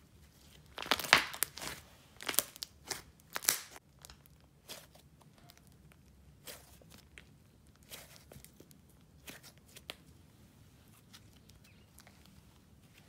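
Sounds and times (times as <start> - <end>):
slime crackling pops: 0.8 - 3.8.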